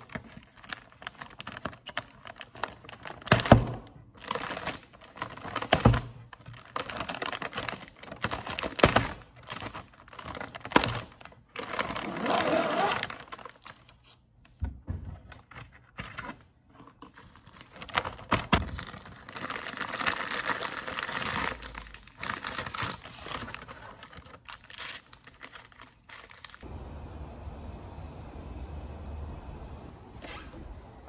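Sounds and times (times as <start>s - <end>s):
plastic wrappers crinkling: 0.0s - 14.2s, 15.4s - 26.7s
low background rumble: 26.6s - 30.1s.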